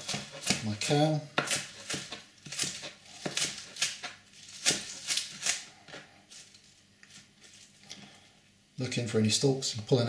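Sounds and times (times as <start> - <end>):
knife chopping leaves: 0.0 - 6.1.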